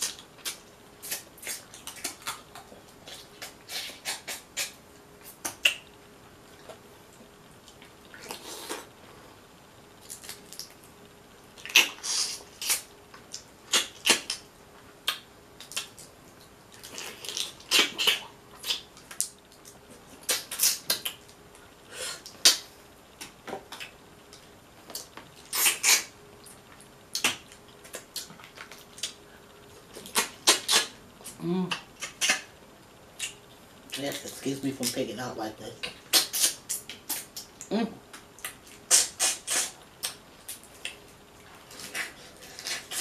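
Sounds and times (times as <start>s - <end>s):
wet smacking and chewing: 0.0s - 5.8s, 15.0s - 21.4s, 22.2s - 29.2s.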